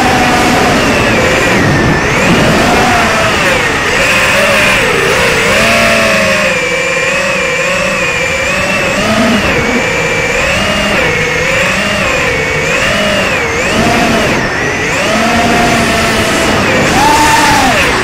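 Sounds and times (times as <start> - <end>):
drone motors whining: 0.0 - 18.0.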